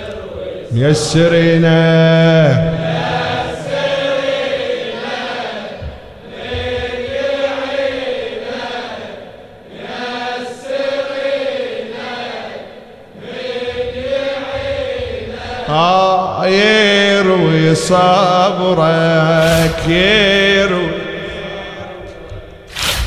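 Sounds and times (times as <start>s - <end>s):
man reciting loudly: 0.0s - 3.6s, 15.5s - 22.7s
men chanting in unison: 0.0s - 22.7s.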